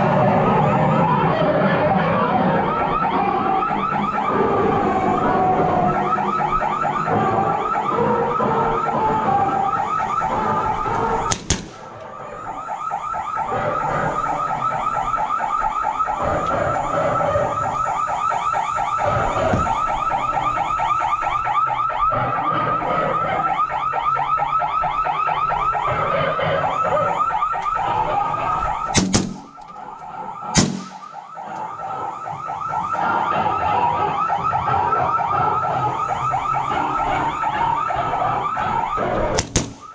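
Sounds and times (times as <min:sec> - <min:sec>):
suppressed rifle shots: 0:11.3 - 0:11.9, 0:28.9 - 0:29.7, 0:30.6 - 0:31.2, 0:39.4 - 0:39.9.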